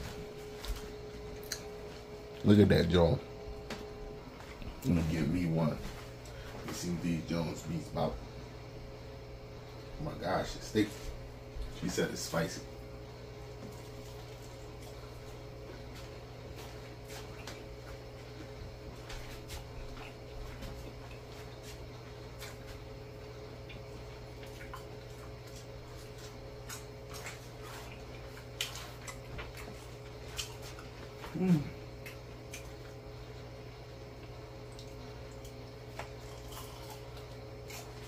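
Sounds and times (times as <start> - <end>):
steady low hum: 0.0 - 38.0
person chewing wetly: 0.7 - 2.4, 23.5 - 38.0.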